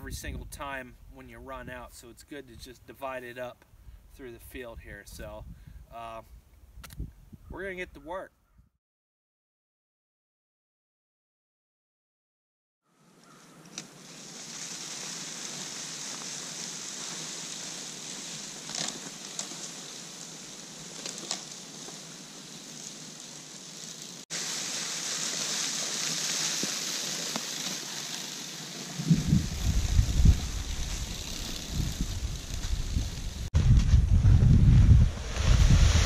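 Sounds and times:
spreader throwing pellets hiss: 13.8 - 32.0
light ticks of pellets: 22.7 - 28.7.

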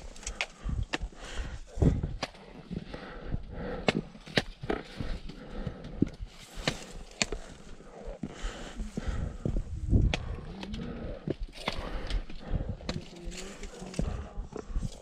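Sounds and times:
footsteps on rocky trail: 0.0 - 15.0
trekking poles clicking on stones: 5.9 - 7.8, 10.0 - 15.0.

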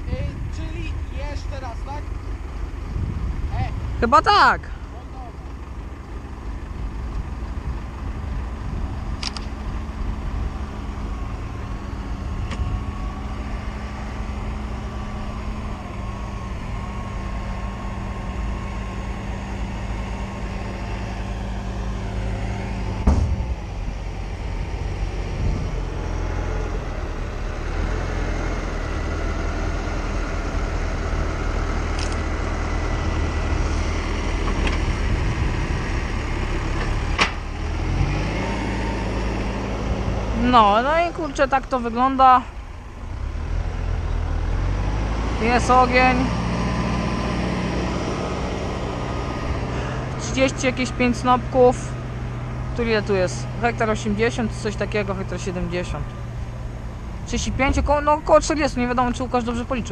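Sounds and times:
tractor diesel engine running: 0.0 - 59.9
sharp knock: 23.0 - 23.5.

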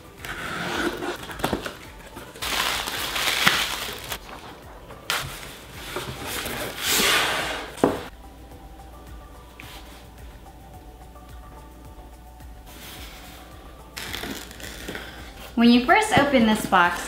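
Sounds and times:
packing material rustling: 0.7 - 6.9, 14.0 - 15.0.

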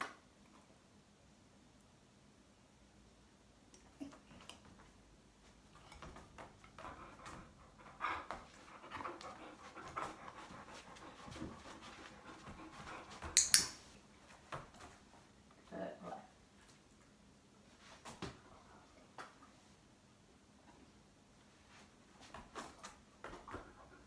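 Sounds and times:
soft shuffling steps: 4.2 - 13.3, 21.4 - 24.0
dog panting: 5.8 - 13.4.

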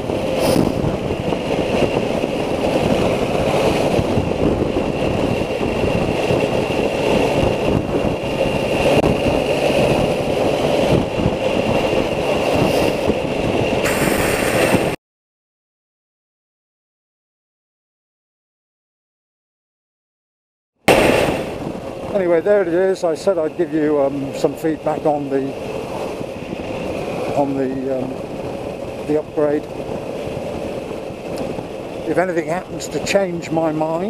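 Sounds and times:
motorcycle engine running: 0.0 - 14.6.

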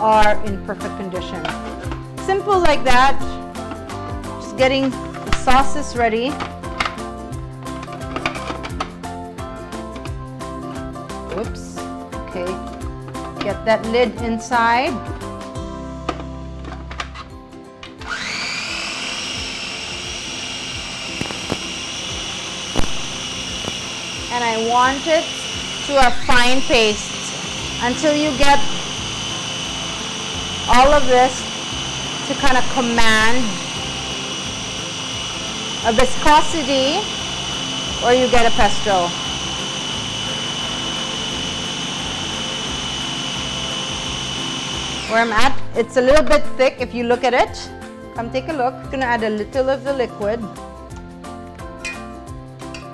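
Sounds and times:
background music: 0.0 - 52.9
electric food chopper whining: 0.9 - 11.6, 17.8 - 46.8.

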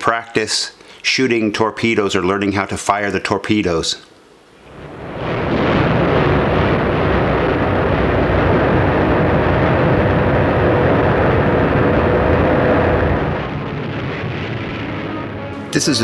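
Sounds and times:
boat engine rumble: 4.7 - 15.7.

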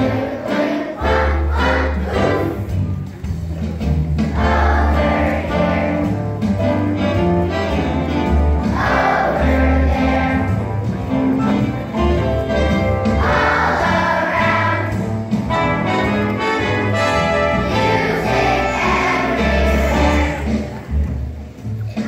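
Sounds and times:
children's choir singing: 0.0 - 2.9, 4.3 - 6.4, 7.6 - 11.4, 13.0 - 21.0
instrumental accompaniment: 0.0 - 22.0.

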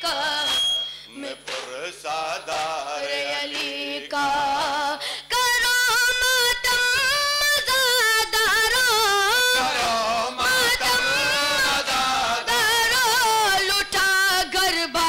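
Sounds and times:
boy chanting into a microphone: 3.1 - 15.0.

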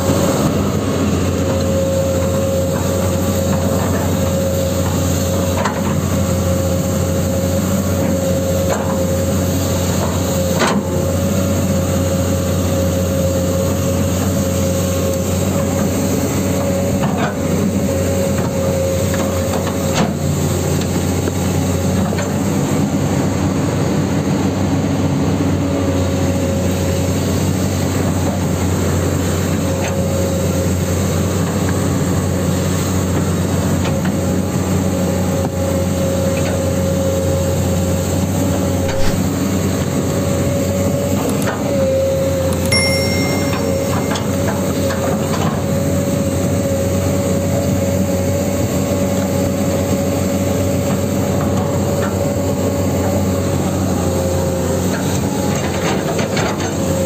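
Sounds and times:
high whine: 42.6 - 45.7.

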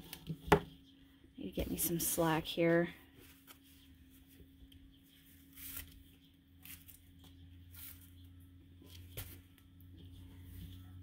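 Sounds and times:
yarn rustling on tabletop: 5.2 - 8.2.

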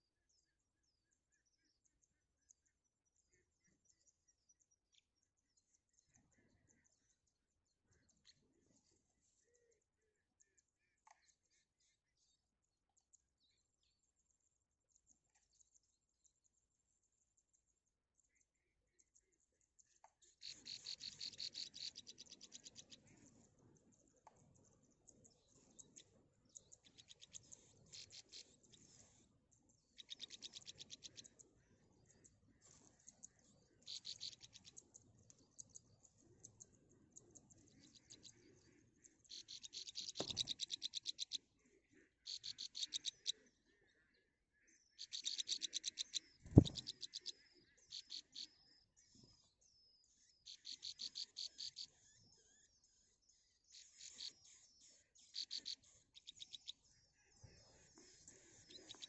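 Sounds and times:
nestling birds chirping: 20.2 - 41.4, 45.0 - 48.4, 57.5 - 59.0.

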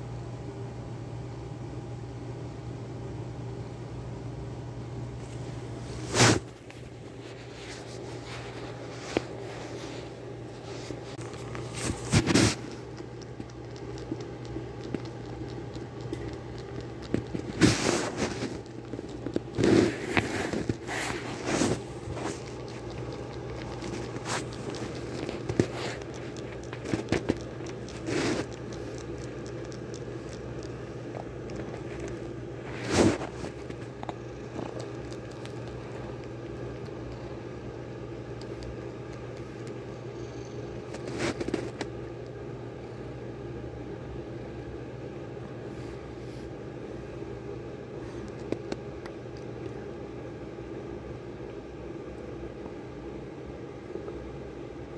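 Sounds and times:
low hum: 3.2 - 45.1.

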